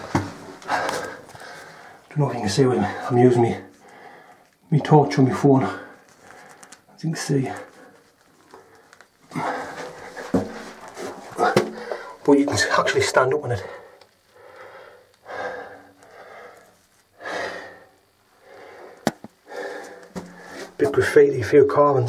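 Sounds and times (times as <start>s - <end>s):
person breathing softly: 3.8s - 4.5s, 13.6s - 20.8s.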